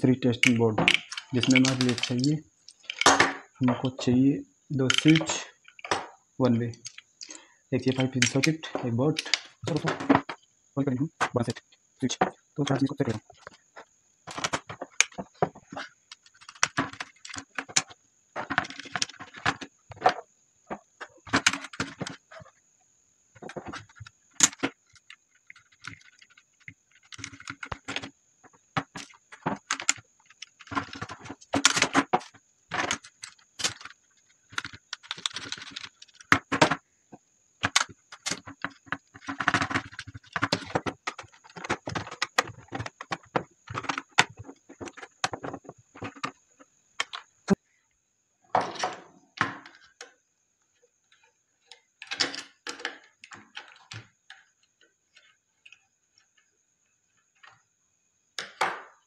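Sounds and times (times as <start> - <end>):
plastic parts clicking and clattering: 0.0 - 4.1, 4.7 - 10.5, 11.1 - 22.6, 23.4 - 47.4, 48.5 - 50.2, 51.0 - 56.4.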